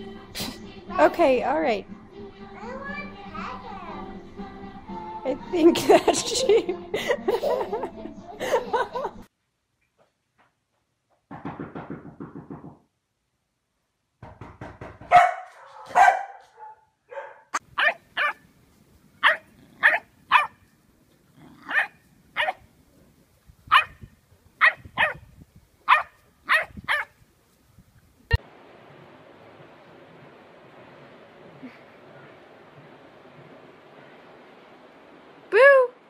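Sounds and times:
dog barking: 15.1s - 18.4s, 19.2s - 20.6s, 21.6s - 22.6s, 23.7s - 24.0s, 24.6s - 25.2s, 25.9s - 27.1s
dog rasping: 17.8s - 18.4s, 19.2s - 20.6s, 21.4s - 22.6s.

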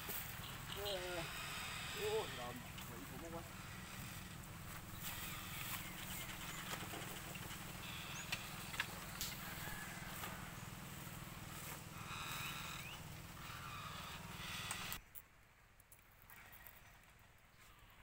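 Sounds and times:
footsteps in dry grass: 0.0s - 0.6s, 3.6s - 13.5s
low outdoor rumble: 0.0s - 18.0s
sharp clicks: 14.5s - 15.2s.

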